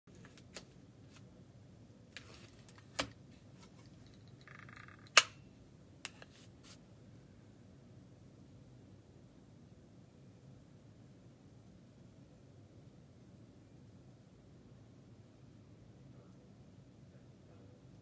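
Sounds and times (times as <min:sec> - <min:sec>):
sharp clicks: 0:04.3 - 0:05.4.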